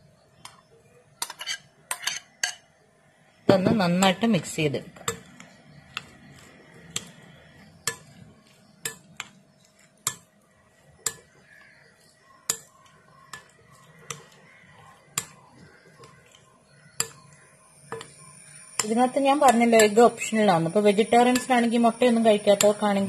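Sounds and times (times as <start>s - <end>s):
soft stirring of batter: 0.0s - 23.0s
metal spoon clinking glass bowl: 1.2s - 2.7s, 8.8s - 9.3s, 10.0s - 10.3s, 11.0s - 11.4s, 12.4s - 14.3s, 17.0s - 18.2s, 18.8s - 20.3s, 21.1s - 22.9s.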